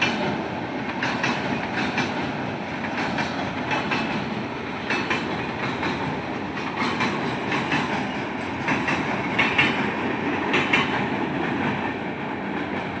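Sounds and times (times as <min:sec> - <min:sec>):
wheels clicking over rail joints: 0:00.0 - 0:12.0
rumble of wheels on rail: 0:00.0 - 0:13.0.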